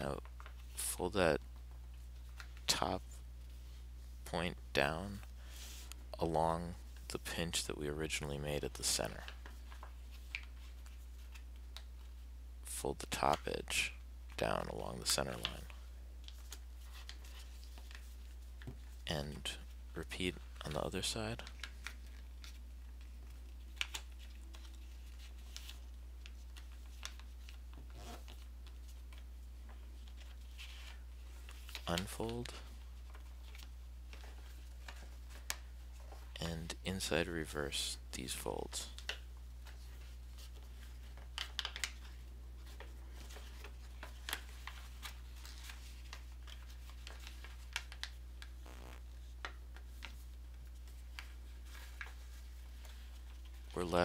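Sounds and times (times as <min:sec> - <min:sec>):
paper rustling and folding: 0:01.6 - 0:03.8, 0:08.7 - 0:12.2, 0:14.4 - 0:36.4, 0:38.9 - 0:54.0
steady low hum: 0:42.0 - 0:54.0
low hum: 0:48.6 - 0:49.1.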